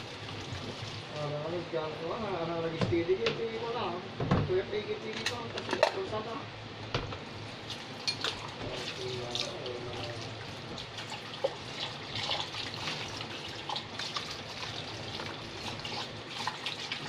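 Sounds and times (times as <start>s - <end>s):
kitchen tap running into sink: 0.0s - 1.2s, 7.6s - 17.0s
water splashing on bowls: 7.4s - 17.0s.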